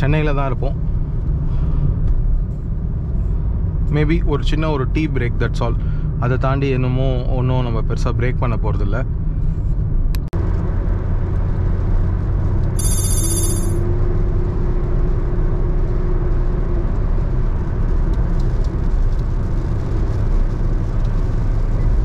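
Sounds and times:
road and engine rumble in car: 0.0 - 12.8, 13.8 - 22.0
high-pitched ringing squeal: 12.8 - 13.8
rain on windshield: 17.8 - 22.0.

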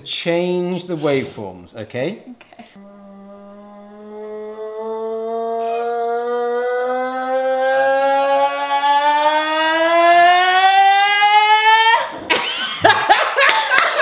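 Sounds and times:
girl singing long note: 2.8 - 4.2, 5.6 - 6.0.

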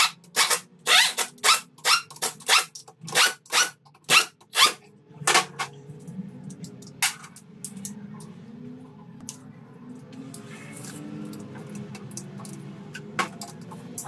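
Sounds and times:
pneumatic impact wrench rattling: 0.0 - 4.8
low steady hum: 4.8 - 14.0.

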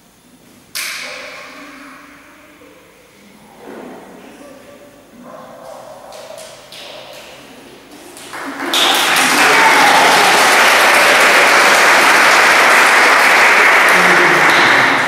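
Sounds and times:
audience applause: 8.1 - 15.0.

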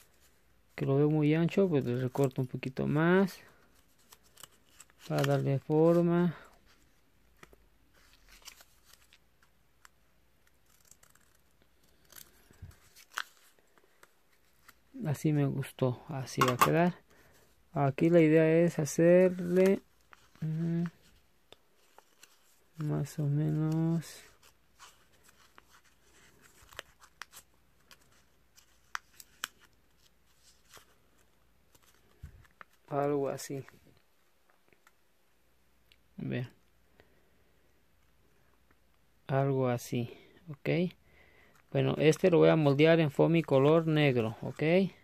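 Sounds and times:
paper rustling: 3.2 - 14.9, 18.8 - 32.9
scissors snipping paper: 10.4 - 13.4.

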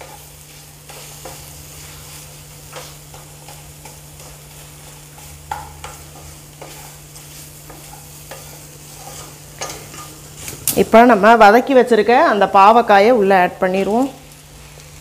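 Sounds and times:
spatula scraping a pan: 0.0 - 10.6
low sizzle of frying: 0.0 - 15.0.

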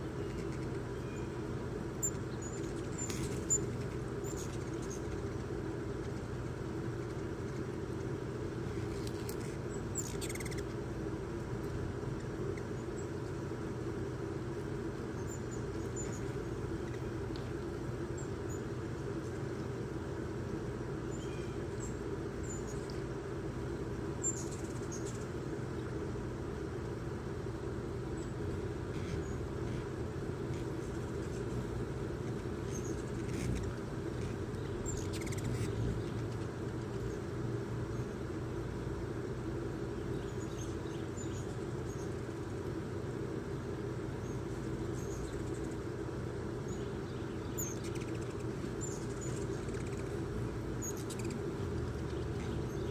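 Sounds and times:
steady low hum: 0.0 - 52.9
hummingbird high chips: 30.4 - 37.3.

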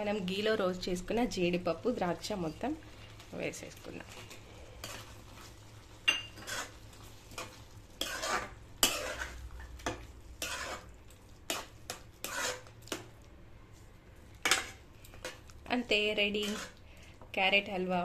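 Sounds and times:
spoon scraping metal pan: 6.1 - 6.8, 7.4 - 13.0, 14.4 - 15.4, 16.2 - 16.8.

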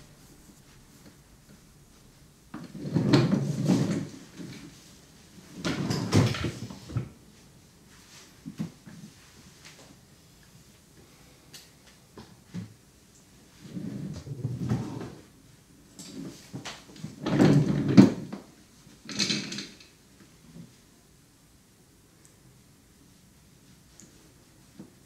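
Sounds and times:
rubbing and rustling: 0.0 - 10.9.

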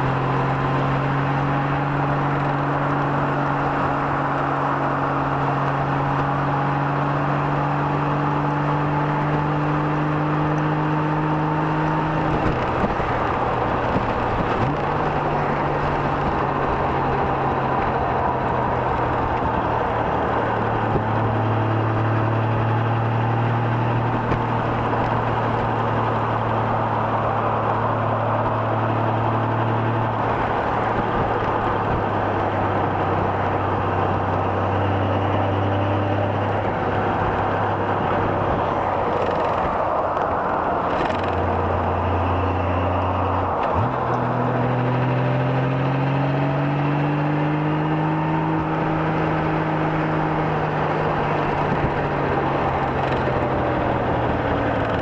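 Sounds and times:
wind and road rush: 0.0 - 55.0.

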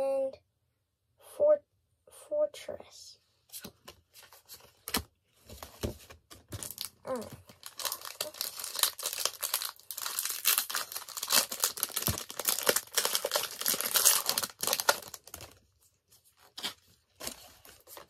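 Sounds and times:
foil wrapper tearing and crinkling: 6.6 - 15.6.

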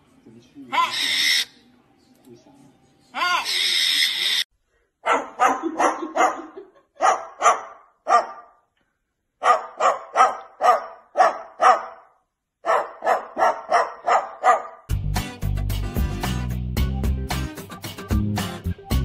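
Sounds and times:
cockatoo imitating dog barks: 0.7 - 1.5, 3.2 - 4.2, 9.4 - 14.8.

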